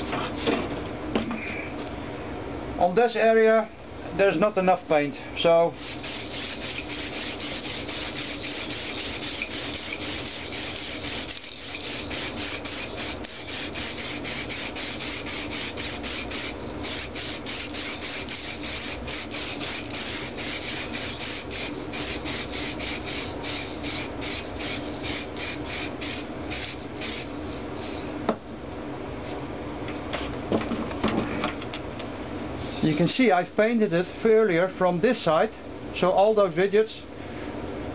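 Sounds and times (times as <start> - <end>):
aerosol spray can hissing: 5.8 - 28.0.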